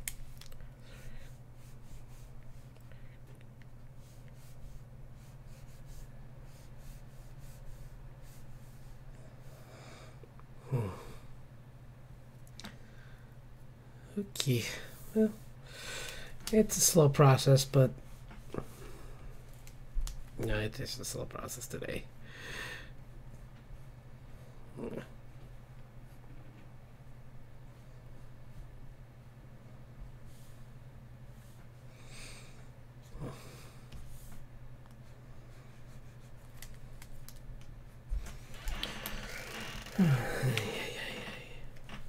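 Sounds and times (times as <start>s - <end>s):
low electrical hum: 0.0s - 42.0s
stylus scratching on a tablet: 4.0s - 8.9s
person grunting: 10.6s - 11.3s, 24.7s - 25.1s, 39.9s - 41.6s.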